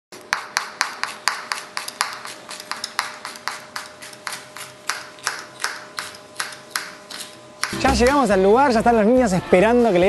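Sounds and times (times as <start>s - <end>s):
knife chopping on cutting board: 0.2s - 8.2s.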